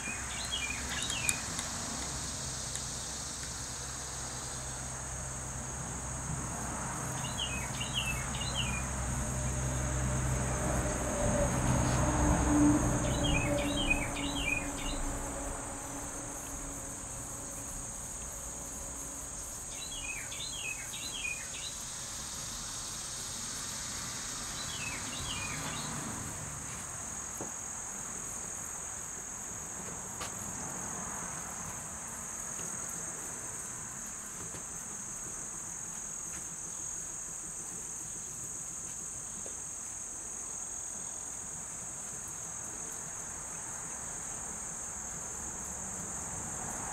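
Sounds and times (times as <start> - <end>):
bird chirping: 0.0 - 1.5, 7.2 - 8.9, 13.0 - 15.3, 19.7 - 21.8, 24.6 - 26.0
insect chorus: 0.0 - 46.9.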